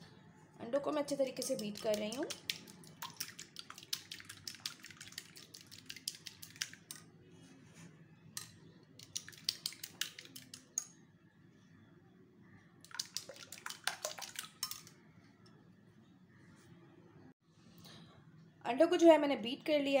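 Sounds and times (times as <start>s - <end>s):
fork beating eggs in glass bowl: 1.2s - 7.0s, 8.4s - 10.9s, 12.8s - 14.9s.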